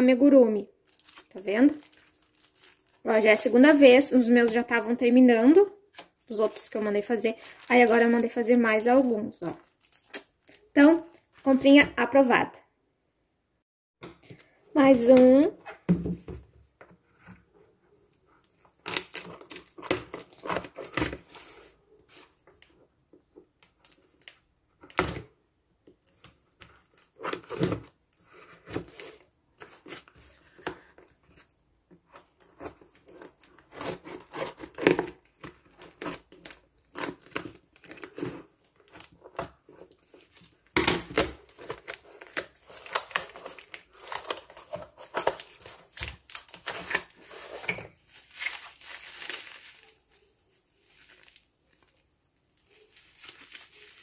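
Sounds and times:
bubble wrap crinkling: 0.7s - 4.8s, 5.9s - 11.8s, 18.3s - 22.7s, 32.2s - 54.0s
tape tearing: 18.7s - 21.3s, 32.7s - 50.3s.

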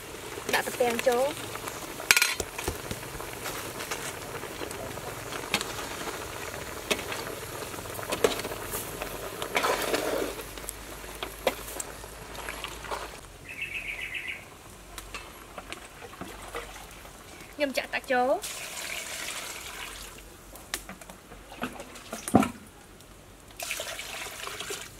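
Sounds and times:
rapid bird chirping: 13.4s - 14.5s.

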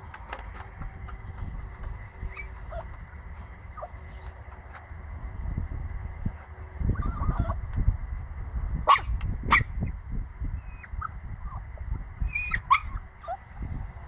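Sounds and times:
puppy yapping: 2.2s - 3.0s, 6.9s - 7.6s, 12.3s - 13.5s.

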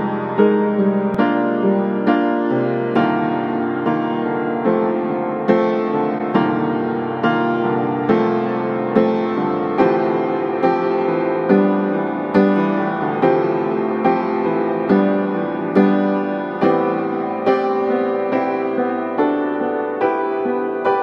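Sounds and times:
piano chords: 0.0s - 21.0s.

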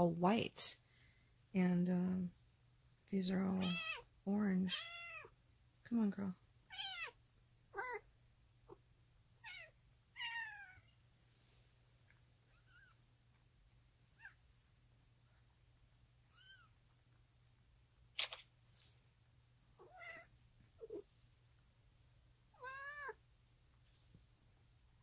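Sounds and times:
kittens mewing: 6.7s - 8.0s
sharp click: 18.2s - 18.5s.

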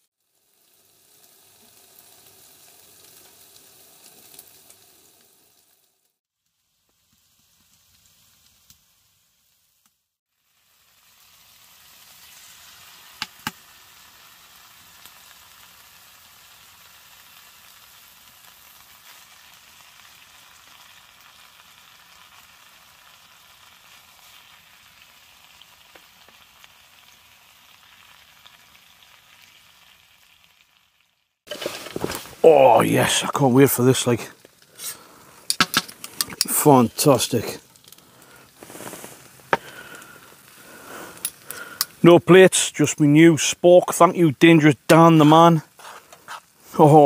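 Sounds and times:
food sizzling in frying pan: 0.0s - 47.0s.

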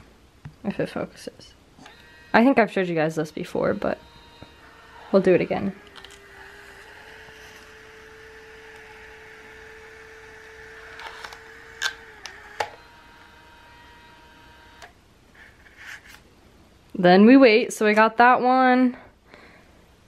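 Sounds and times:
photo printer motor whirring: 1.8s - 15.0s
sharp printer clicks: 3.8s - 13.0s.

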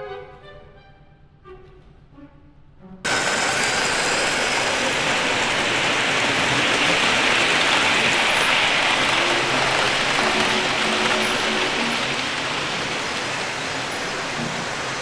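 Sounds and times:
model trains rattling on track: 3.1s - 15.0s.

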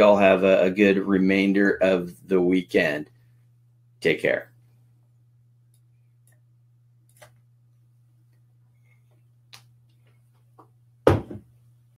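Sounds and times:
steady low hum: 0.0s - 12.0s
loud knock with rattle: 11.0s - 11.5s.

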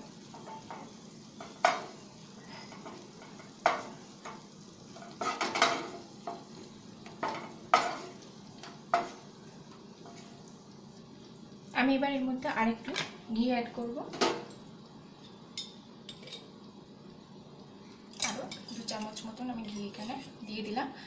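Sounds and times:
faint sizzle of hot oil: 0.0s - 21.0s
spatula knocking and scraping a pan: 0.2s - 10.4s.

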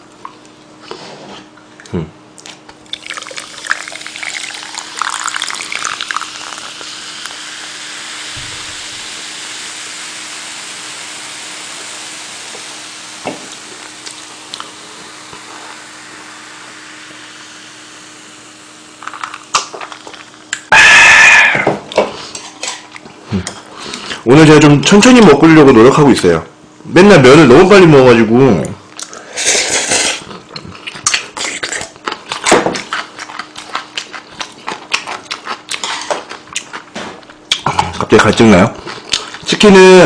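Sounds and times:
soda pouring into cup: 2.9s - 9.7s
fizzing carbonation hiss: 3.0s - 19.7s.

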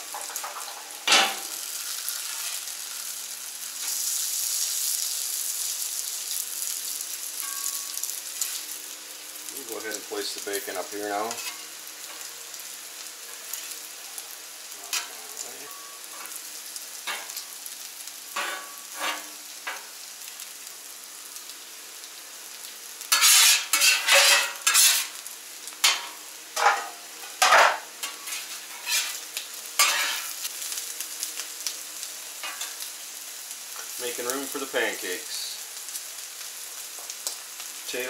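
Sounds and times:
food sizzling on a griddle: 0.0s - 38.0s
metal spatula scraping griddle: 11.2s - 12.2s, 14.8s - 16.4s, 18.3s - 19.9s, 23.1s - 25.2s, 25.8s - 29.2s, 29.8s - 30.4s.

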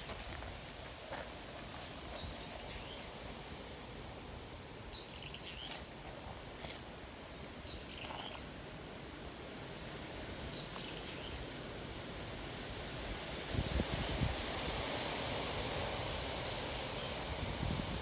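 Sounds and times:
background hiss: 0.0s - 18.0s
faint bird chirps: 7.3s - 8.5s.

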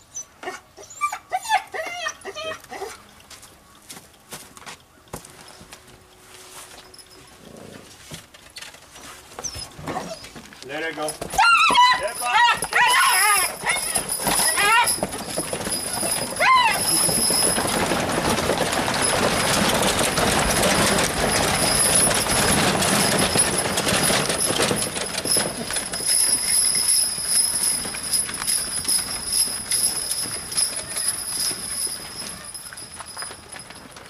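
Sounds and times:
hoof clops: 2.4s - 34.0s
wagon wheels rumbling and rattling: 6.8s - 34.0s.

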